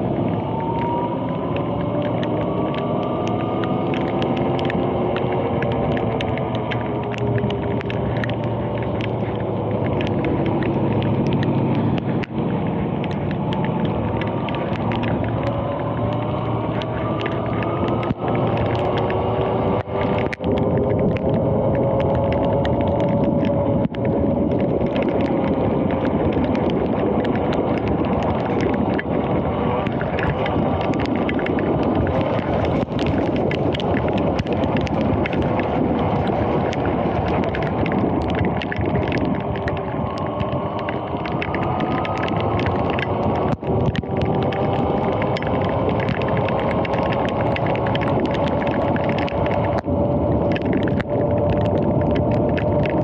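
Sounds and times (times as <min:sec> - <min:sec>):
wind rushing: 0:00.0 - 0:53.0.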